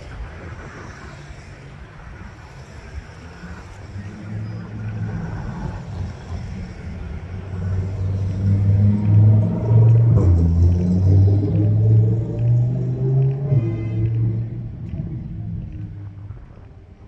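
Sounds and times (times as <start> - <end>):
street traffic noise: 0.0 - 17.0
sports car engine passing by: 4.2 - 16.1.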